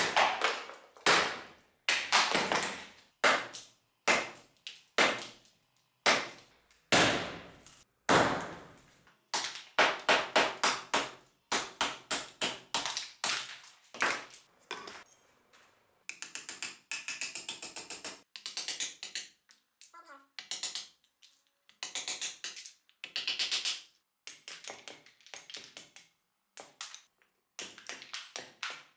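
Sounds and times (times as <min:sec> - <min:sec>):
axe chopping wood: 0:00.0 - 0:04.4, 0:06.1 - 0:14.3.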